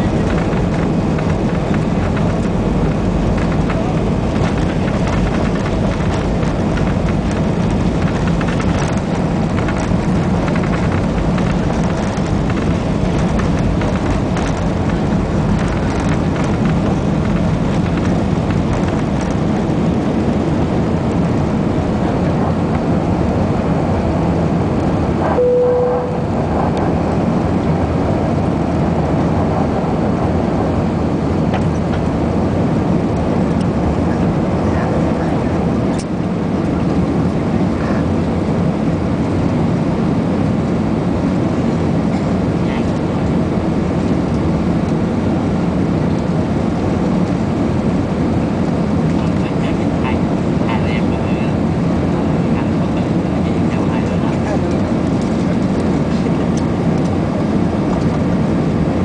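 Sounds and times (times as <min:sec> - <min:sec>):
jet engines at takeoff power: 0:00.0 - 0:59.0
wheels rumbling on runway: 0:00.0 - 0:59.0
short tone: 0:25.2 - 0:26.4.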